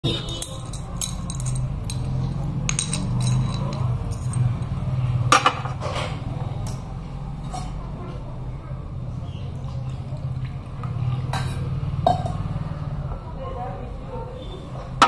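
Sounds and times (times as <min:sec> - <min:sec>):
glass vials clinking on table: 0:00.3 - 0:04.7.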